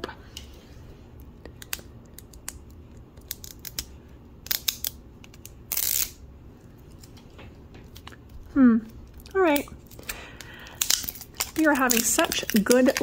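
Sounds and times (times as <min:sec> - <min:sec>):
wrapper ripping peel: 0:03.2 - 0:06.2, 0:09.1 - 0:13.0.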